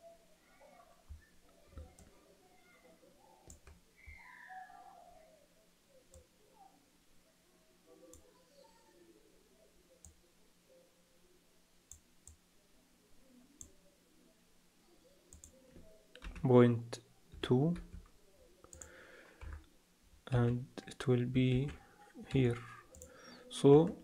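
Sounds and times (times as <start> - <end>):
computer mouse clicks: 17.8 - 19.6, 22.9 - 23.1.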